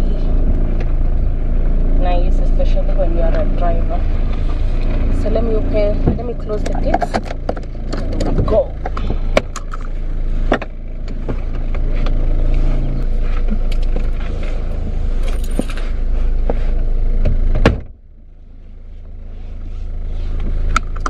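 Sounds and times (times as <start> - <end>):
vehicle engine rumble: 0.0 - 21.0.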